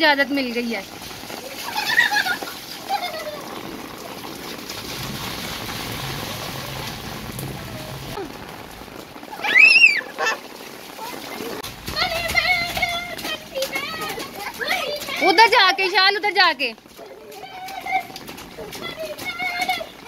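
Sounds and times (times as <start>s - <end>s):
rain on a tiled roof: 0.0s - 20.0s
feet splashing through water: 0.6s - 20.0s.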